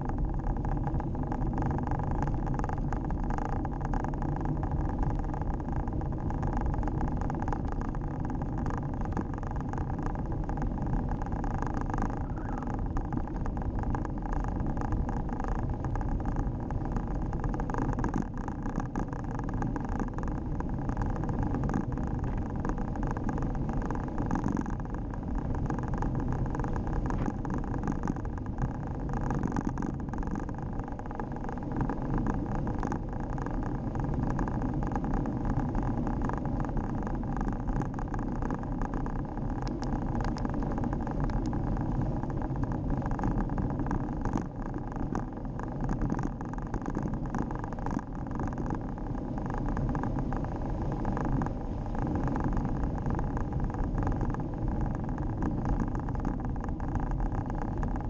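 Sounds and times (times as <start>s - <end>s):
bicycle tyre rumble: 0.0s - 58.0s
bike rattling ticks: 0.0s - 58.0s
wind buffeting microphone: 19.0s - 47.3s.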